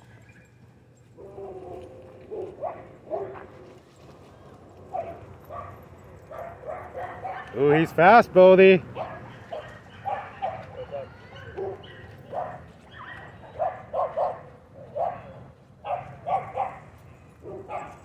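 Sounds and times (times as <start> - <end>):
dog barking and yipping: 1.2 - 3.5, 4.9 - 7.8, 8.9 - 18.0.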